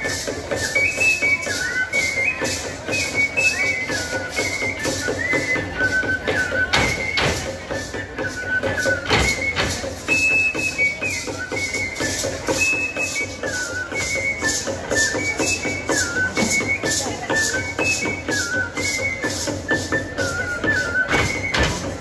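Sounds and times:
drum strokes: 0.0s - 22.0s
flute playing folk melody: 0.0s - 22.0s.

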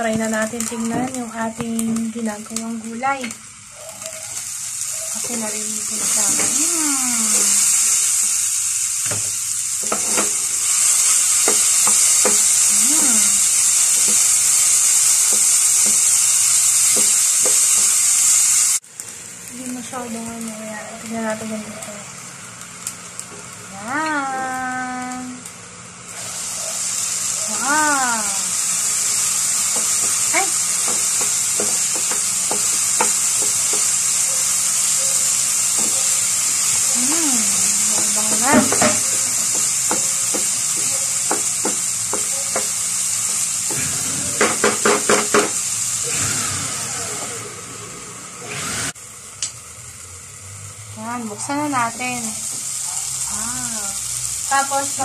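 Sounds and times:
vegetables sizzling in a frying pan: 0.0s - 55.0s
spatula scraping and tapping pan: 9.8s - 10.4s, 29.7s - 36.1s, 37.8s - 42.8s.

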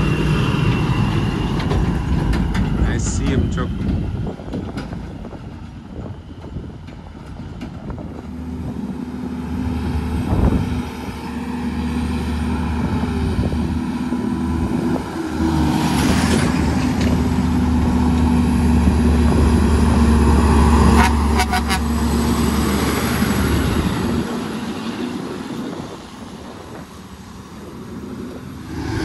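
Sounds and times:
diesel truck engine running: 0.0s - 29.0s.

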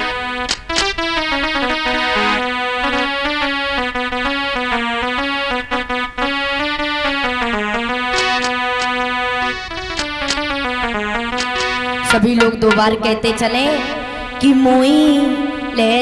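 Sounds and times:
electronic keyboard melody: 0.0s - 16.0s
light percussive taps: 11.4s - 13.1s.

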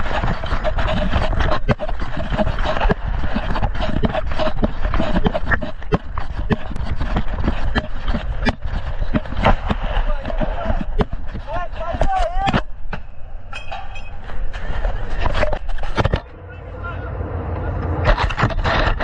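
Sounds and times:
knocks and rattles: 0.0s - 16.3s
armoured vehicle low rumble: 14.1s - 19.0s.

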